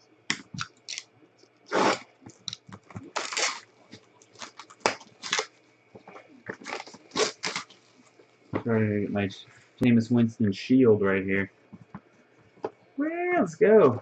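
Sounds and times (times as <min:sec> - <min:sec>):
shrink wrap crinkling and ripping: 0:00.3 - 0:01.1, 0:01.7 - 0:08.2.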